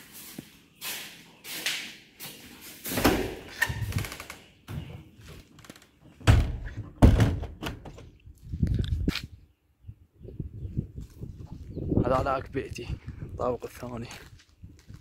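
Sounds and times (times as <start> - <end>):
door opening and banging shut: 2.9 - 5.0, 6.1 - 8.1
footsteps on concrete: 14.0 - 15.0.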